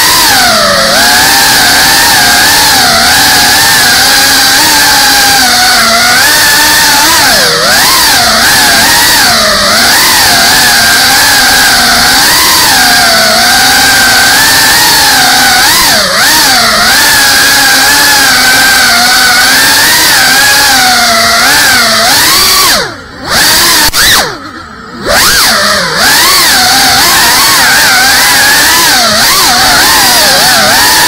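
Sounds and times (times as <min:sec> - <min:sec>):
drone propellers buzzing: 0:00.0 - 0:31.0.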